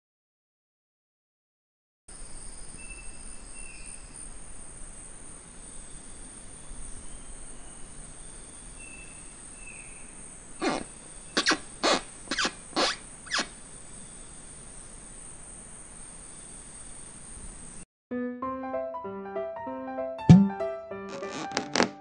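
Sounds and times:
high insect drone: 2.1 - 17.8
monkey squeaks: 10.6 - 13.5.

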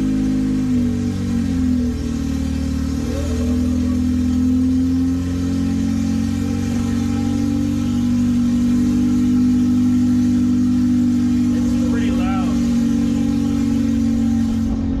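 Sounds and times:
loud car engine idling: 0.0 - 15.0.

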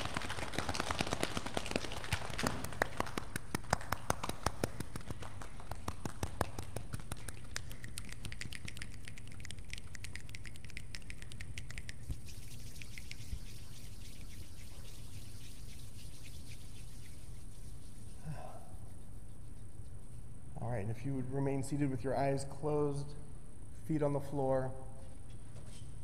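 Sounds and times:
light hand claps: 0.0 - 12.0
palms rubbing together: 0.0 - 20.6
scattered finger snaps: 3.2 - 12.1.

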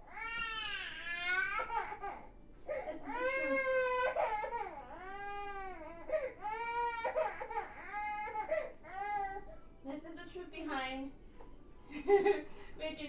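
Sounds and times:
toddler crying: 0.0 - 9.5.

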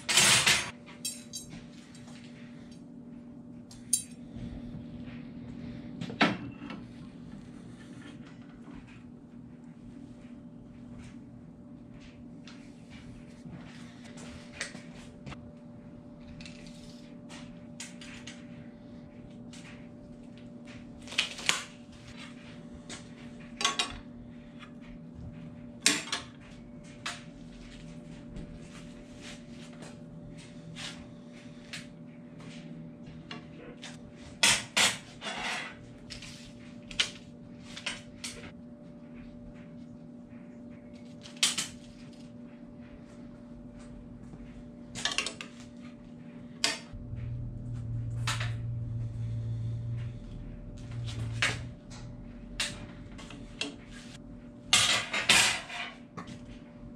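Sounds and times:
low hum: 46.1 - 54.8.

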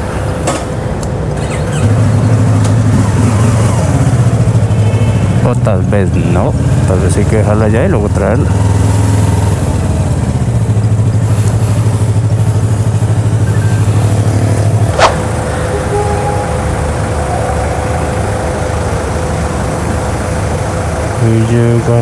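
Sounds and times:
motorcycle engine idling: 1.4 - 22.0
sharp downward pitch sweep: 13.6 - 20.5
steady mid-pitched tone: 14.3 - 21.2.

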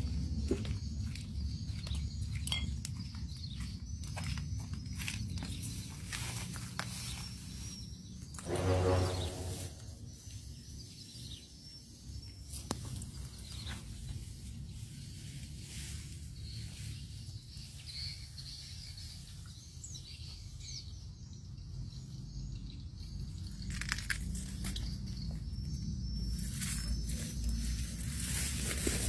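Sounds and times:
footsteps through dry grass: 3.0 - 10.0, 26.6 - 29.0.

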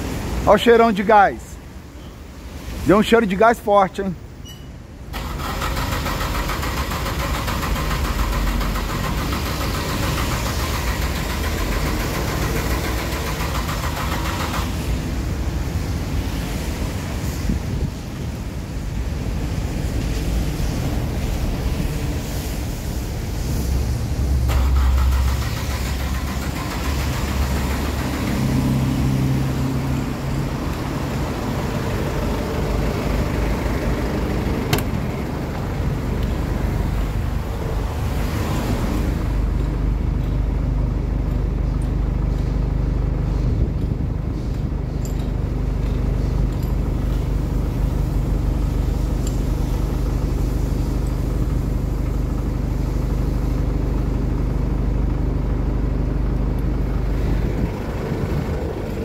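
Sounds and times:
vehicle engine running: 5.2 - 16.6, 23.0 - 59.0
hiss of noise: 5.2 - 39.4, 47.2 - 54.2
sharp click: 34.7 - 35.0.

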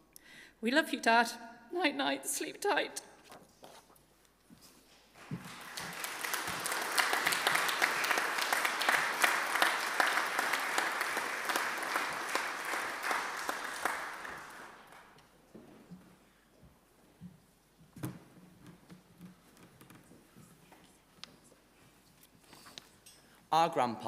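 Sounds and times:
congregation applauding: 5.2 - 15.3.

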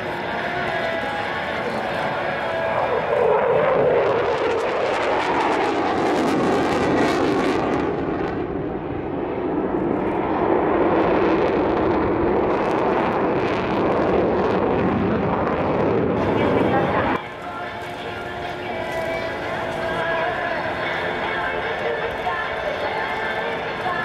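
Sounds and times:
jet engine rushing: 0.0 - 24.0.

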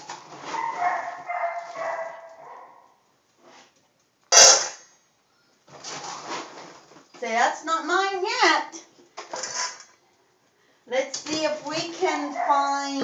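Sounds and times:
dog whining: 0.4 - 2.9.

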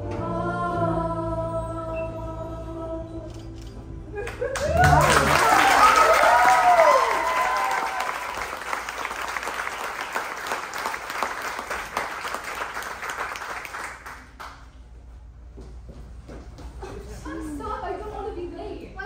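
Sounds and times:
singing: 0.0 - 3.5
audience applauding: 4.2 - 14.8.

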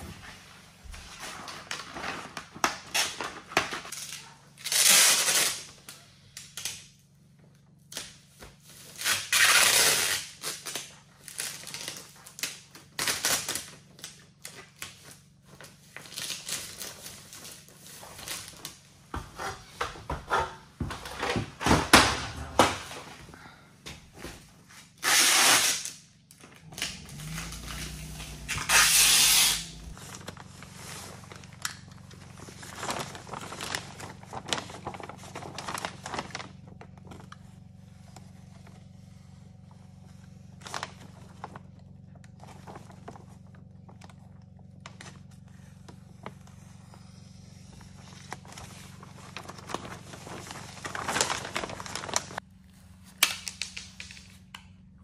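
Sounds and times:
tape tearing off roll: 1.0 - 6.8, 8.8 - 15.0, 24.9 - 36.6
steady low hum: 3.9 - 55.0
plastic sheeting crinkling: 8.6 - 19.0, 26.6 - 54.5.

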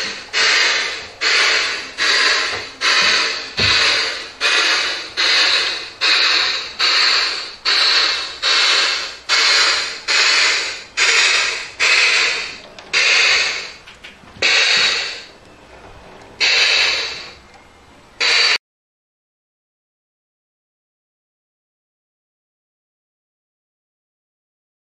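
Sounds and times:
model steam locomotive chuffs: 0.0 - 18.6.

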